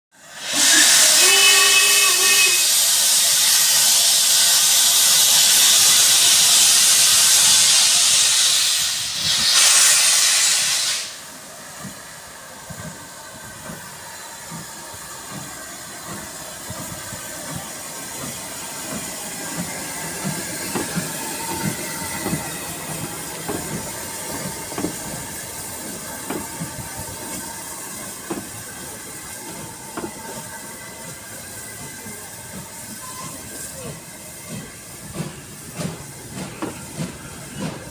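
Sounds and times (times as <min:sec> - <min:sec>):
loud steam hiss: 0:00.2 - 0:37.9
steam locomotive exhaust beats: 0:00.2 - 0:37.9
steam whistle note: 0:00.3 - 0:03.7.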